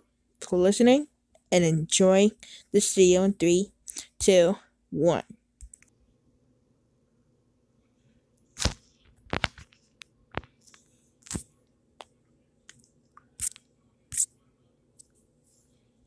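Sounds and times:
faint steady hum: 0:00.0 - 0:16.0
sharp clicks and crunches: 0:08.6 - 0:09.8.

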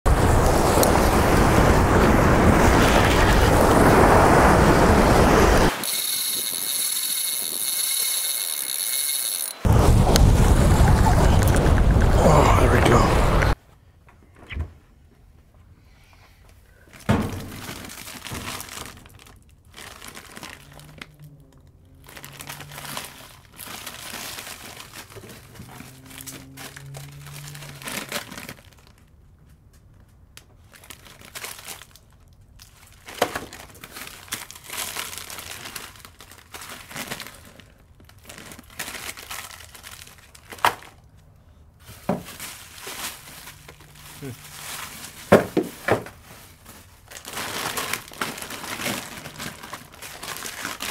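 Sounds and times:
packaging crinkling and rustling: 0:17.0 - 0:29.2, 0:30.0 - 0:41.2, 0:41.8 - 0:50.9.

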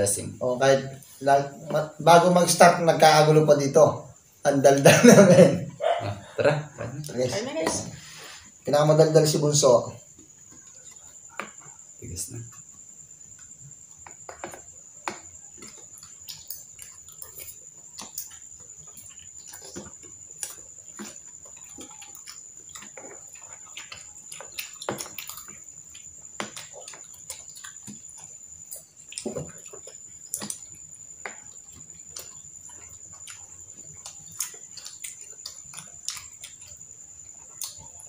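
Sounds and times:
chewing and mouth sounds: 0:12.6 - 0:38.0.

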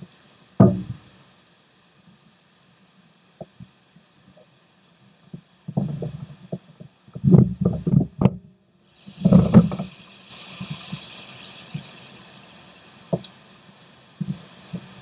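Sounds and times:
steady hiss: 0:00.0 - 0:15.0
paddle knocking on plastic kayak: 0:00.6 - 0:01.0.

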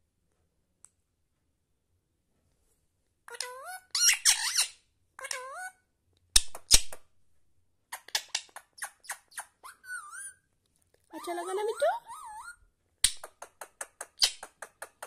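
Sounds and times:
parakeet calling: 0:03.4 - 0:05.7, 0:07.9 - 0:10.4.

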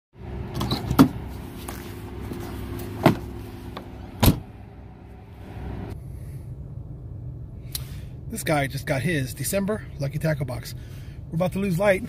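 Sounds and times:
steady low hum: 0:00.2 - 0:12.0
truck door thud: 0:04.2 - 0:04.5.

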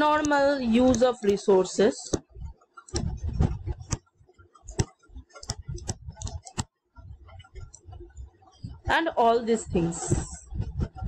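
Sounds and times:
stylus tapping on tablet: 0:02.0 - 0:08.0
soft low bumps: 0:02.1 - 0:11.0.

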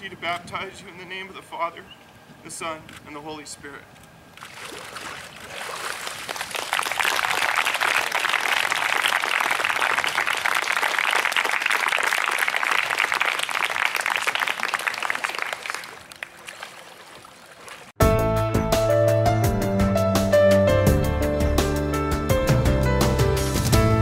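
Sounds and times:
group applause: 0:05.8 - 0:17.9
music: 0:18.0 - 0:24.0.

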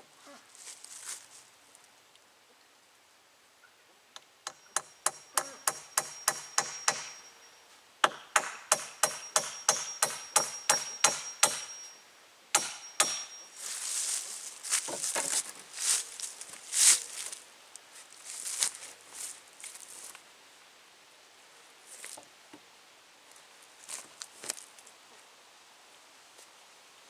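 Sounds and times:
rustling: 0:00.1 - 0:02.0, 0:13.5 - 0:20.3, 0:21.5 - 0:22.3, 0:23.2 - 0:25.3
hammer striking nail: 0:04.4 - 0:07.2, 0:08.0 - 0:11.8, 0:12.6 - 0:13.4.

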